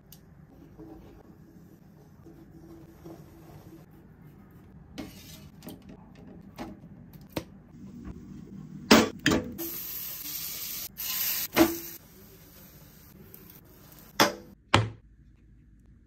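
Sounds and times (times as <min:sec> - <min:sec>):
spatula scraping a pan: 0:05.0 - 0:05.6
frying sizzle: 0:09.6 - 0:14.6.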